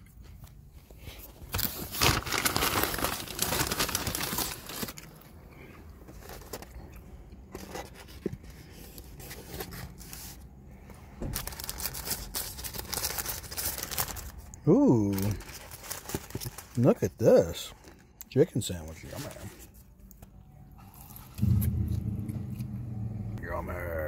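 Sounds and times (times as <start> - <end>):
paper wrapper rustling: 1.1 - 5.3, 11.4 - 18.1.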